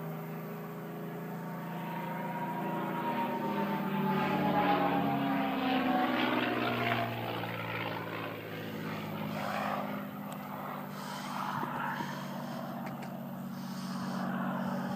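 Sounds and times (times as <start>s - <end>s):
aircraft engine passing: 0.0s - 14.9s.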